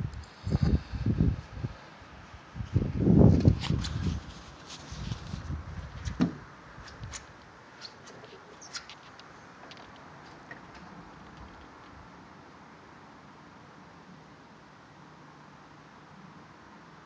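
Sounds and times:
faint outdoor hiss: 0.0s - 17.0s
phone microphone handling rubs: 2.7s - 9.2s.

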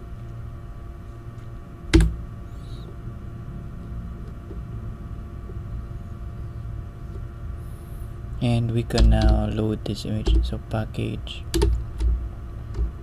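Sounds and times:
steady low hum: 0.0s - 13.0s
keyboard key click: 9.0s - 9.4s.

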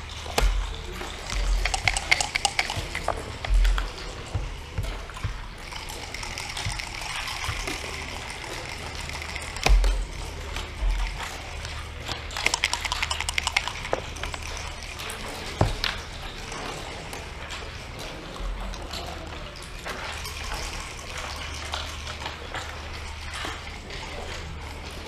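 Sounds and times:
checkers clacking on wooden board: 0.2s - 11.6s, 12.3s - 14.8s
dice rattling: 0.4s - 4.2s, 12.3s - 14.6s.

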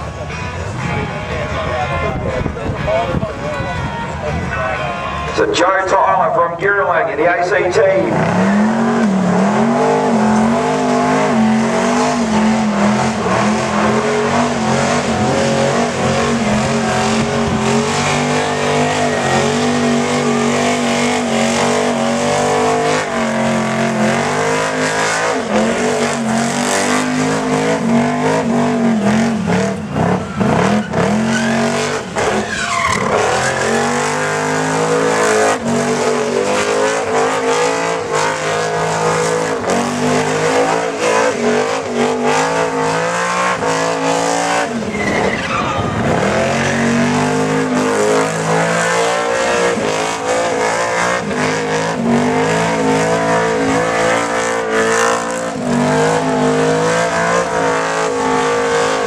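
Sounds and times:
car engine revving high: 4.2s - 59.0s
tyres squealing: 30.0s - 59.0s.

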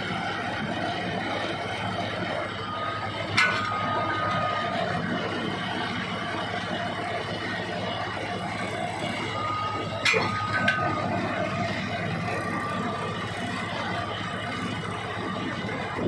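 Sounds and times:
winch engine running: 0.0s - 16.0s.

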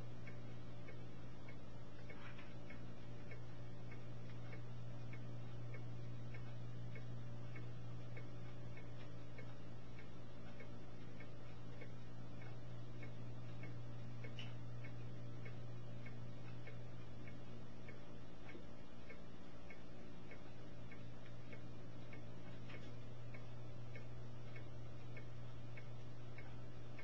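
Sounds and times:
light regular ticking: 0.0s - 27.0s
low mechanical hum: 0.0s - 27.0s.

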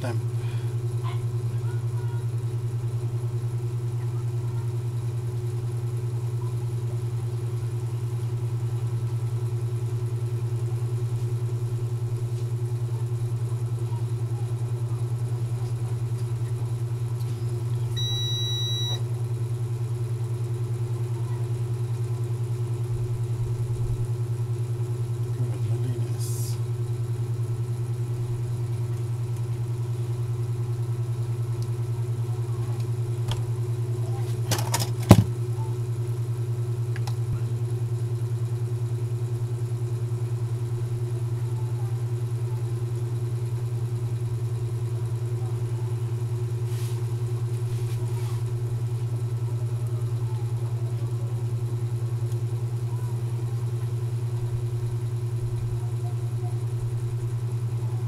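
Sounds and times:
low motor hum: 0.0s - 58.0s
short electronic beep: 18.0s - 19.0s.

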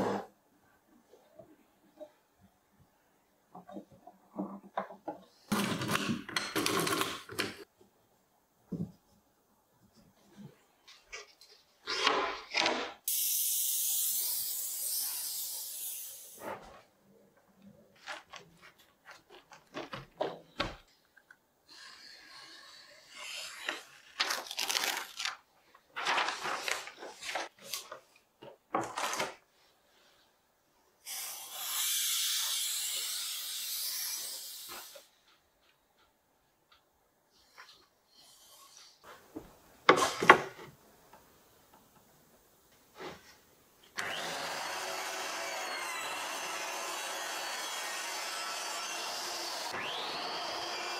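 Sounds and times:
aerosol spray can hissing: 13.1s - 16.3s
paper rustling: 24.1s - 29.5s.

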